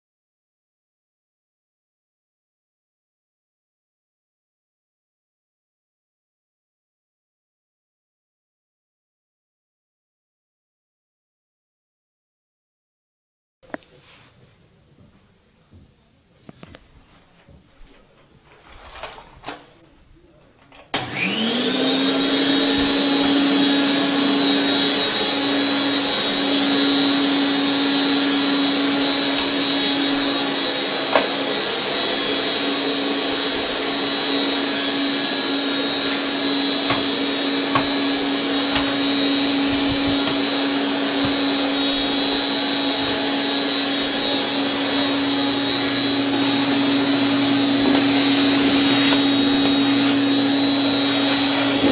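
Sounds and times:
vacuum cleaner motor whining: 20.2s - 51.9s
vacuum wand drawing air on carpet: 21.0s - 51.9s.

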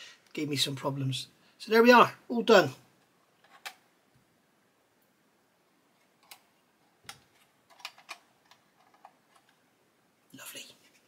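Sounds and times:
plastic parts clicking and tapping: 6.2s - 9.6s.

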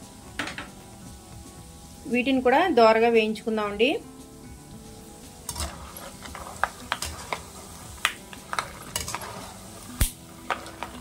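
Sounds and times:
oil sizzling: 0.0s - 11.0s
sharp crackles and clicks: 5.5s - 11.0s.

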